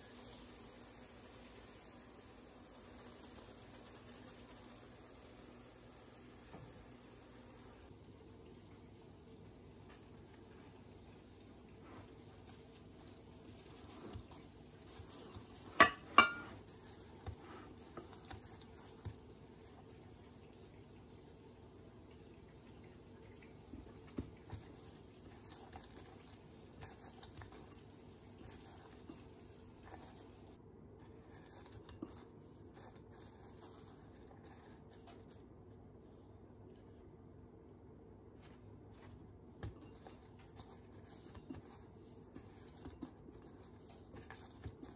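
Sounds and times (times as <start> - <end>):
glass bowl clinking: 15.7 - 16.6
doughnut scratching in sugar bowl: 24.0 - 35.6, 38.5 - 44.9.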